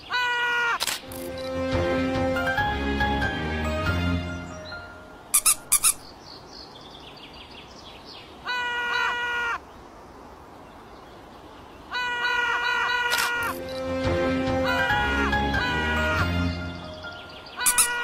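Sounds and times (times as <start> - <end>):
sharp high cartoon clicks: 13.1 - 13.8, 17.7 - 18.0.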